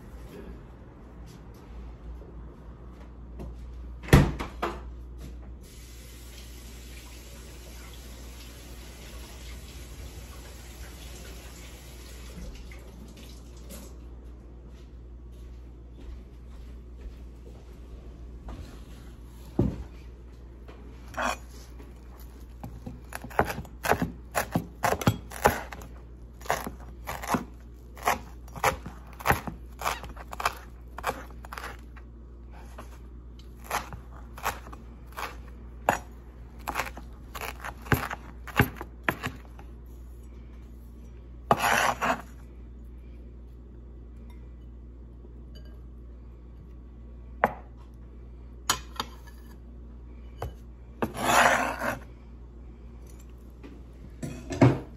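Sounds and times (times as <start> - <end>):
cleaver scraping board: 21.1 - 21.8, 22.6 - 31.9, 33.6 - 36.0, 36.6 - 39.5, 41.5 - 42.3, 51.0 - 52.0
cleaver chopping on cutting board: 22.6 - 31.8, 33.6 - 39.6.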